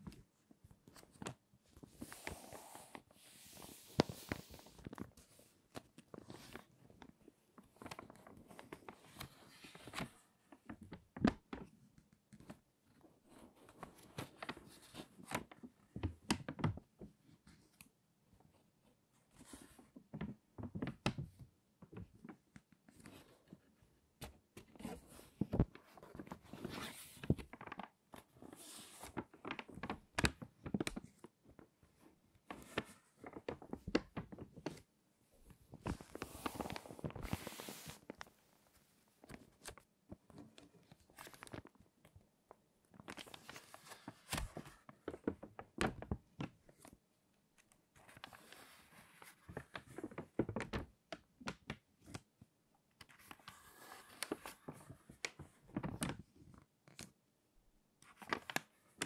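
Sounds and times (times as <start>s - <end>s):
pages rustling as turned: 0.8s - 6.7s, 24.8s - 31.1s, 35.8s - 39.8s, 40.8s - 41.8s, 43.0s - 46.1s, 48.0s - 50.8s, 53.0s - 56.2s, 58.1s - 59.0s
stiff paper pages crackling: 0.8s - 6.7s, 35.8s - 38.3s, 40.8s - 41.8s, 42.9s - 46.9s, 53.0s - 56.2s, 58.1s - 59.0s.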